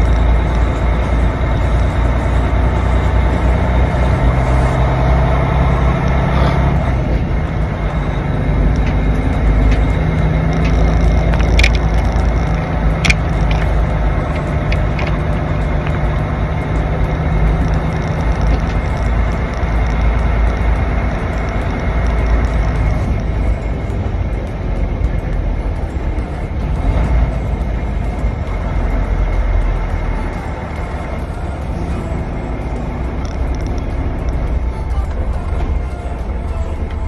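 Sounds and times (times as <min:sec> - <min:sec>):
diesel truck engine rumble: 0:00.0 - 0:37.0
sharp clicks: 0:08.6 - 0:26.3, 0:32.6 - 0:37.0.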